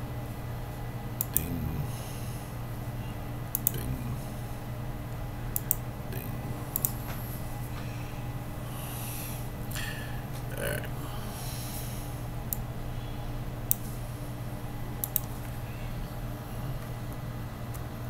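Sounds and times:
steady low hum: 0:00.0 - 0:18.0
sharp computer clicks: 0:01.2 - 0:01.6, 0:03.5 - 0:04.0, 0:05.5 - 0:05.9, 0:06.7 - 0:07.1, 0:13.6 - 0:14.0, 0:15.0 - 0:15.5.

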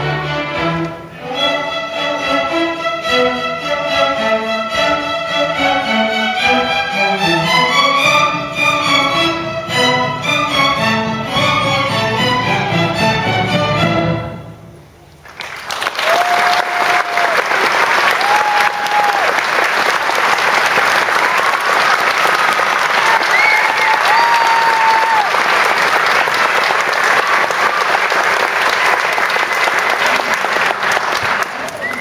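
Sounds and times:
audience applause: 0:15.2 - 0:32.0
cheering calls: 0:15.7 - 0:30.4, 0:31.1 - 0:32.0.

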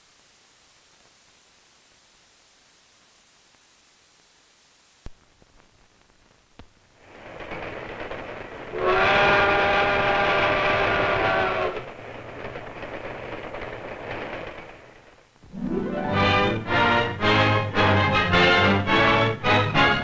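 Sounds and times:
train rumbling: 0:06.9 - 0:20.0
steam locomotive whistle blast: 0:08.7 - 0:11.8.

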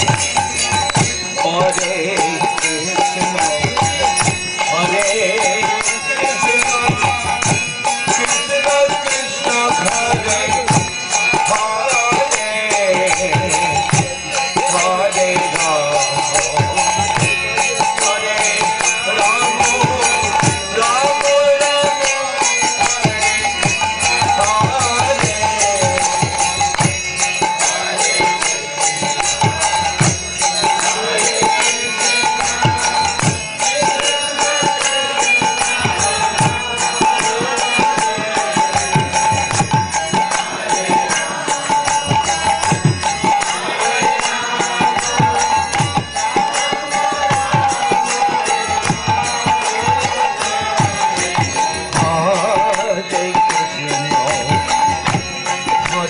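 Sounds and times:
harmonium: 0:00.0 - 0:56.0
hand drums playing: 0:22.6 - 0:56.0.

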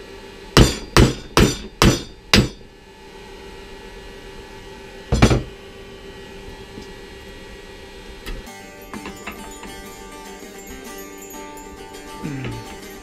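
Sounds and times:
faint steady hum: 0:00.0 - 0:13.0
hammer striking metal: 0:00.6 - 0:02.6, 0:08.9 - 0:09.8.

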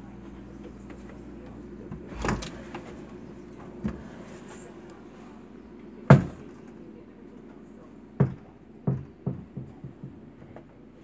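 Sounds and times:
knocking: 0:08.2 - 0:10.2.

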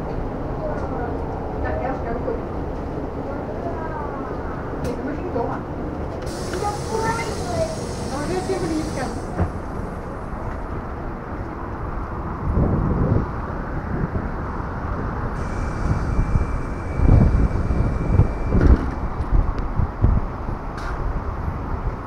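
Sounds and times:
low rumbles: 0:00.0 - 0:22.0
road traffic noise: 0:00.0 - 0:22.0.

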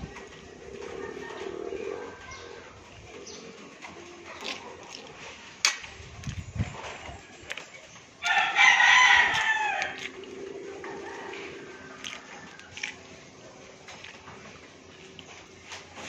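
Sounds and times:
rooster crowing: 0:08.2 - 0:10.1, 0:10.8 - 0:12.9.

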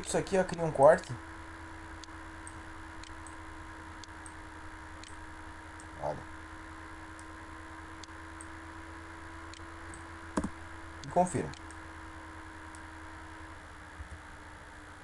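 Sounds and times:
faint electrical hum: 0:00.0 - 0:15.0
computer mouse clicks: 0:05.0 - 0:05.2, 0:09.5 - 0:11.8.

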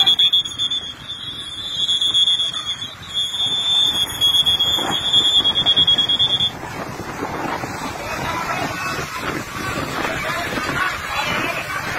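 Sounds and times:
shrill trilling whistle blasts: 0:00.0 - 0:06.5.

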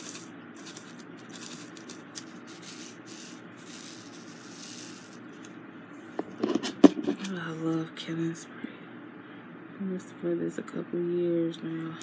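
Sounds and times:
beads scraping in plastic tray: 0:00.0 - 0:05.2.

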